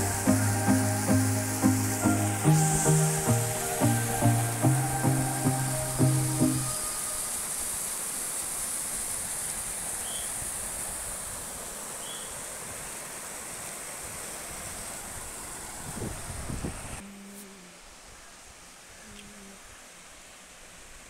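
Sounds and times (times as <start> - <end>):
water rushing over rocks: 0.0 - 15.9.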